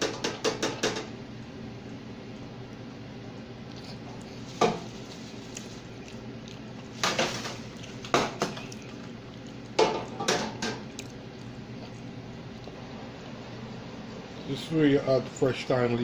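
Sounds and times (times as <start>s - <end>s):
metal basket knocking on fryer: 0.0s - 1.1s.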